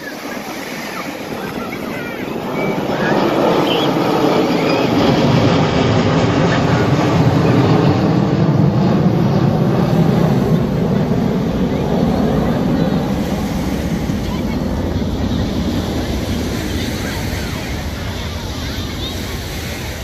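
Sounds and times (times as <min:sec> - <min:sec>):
jet aircraft flying over: 0:00.0 - 0:20.0.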